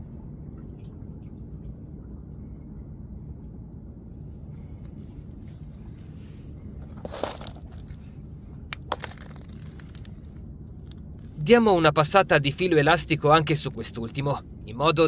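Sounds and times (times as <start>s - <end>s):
low rumble: 0.0s - 15.0s
items rattling in plastic box: 6.9s - 7.9s, 8.8s - 10.1s.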